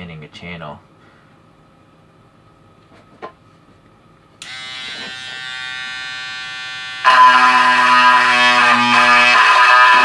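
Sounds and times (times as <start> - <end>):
electric sander buzzing: 4.4 - 10.0.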